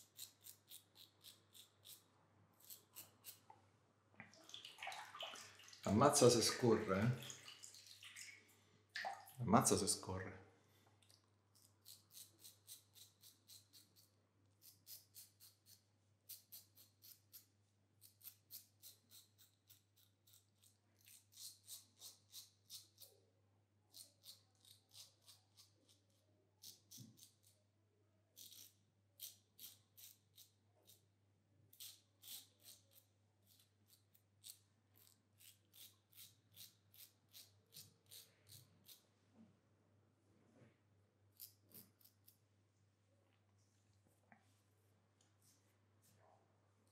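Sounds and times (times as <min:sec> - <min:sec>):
razor scraping stubble: 0:00.0 - 0:03.4.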